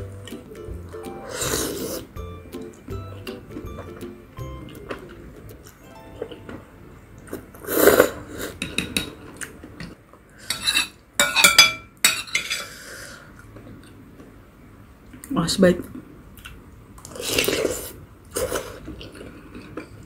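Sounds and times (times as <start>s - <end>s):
metal spoon clinking on glass bowl: 10.6s - 12.6s.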